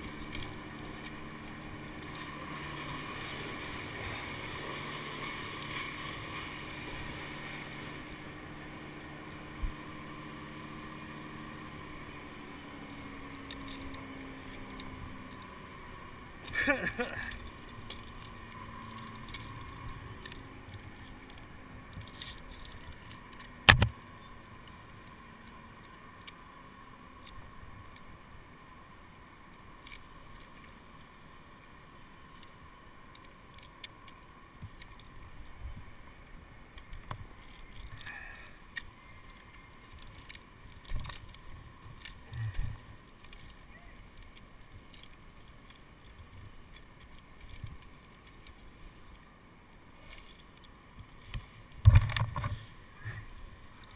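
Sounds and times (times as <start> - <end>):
faint steady hum: 0.0 - 53.9
sharp loud click: 23.6 - 24.0.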